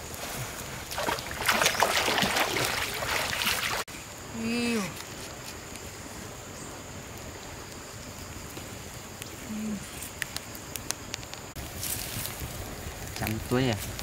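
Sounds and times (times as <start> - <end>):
river water rushing: 0.8 - 3.9
person humming: 4.3 - 5.0, 9.5 - 9.9.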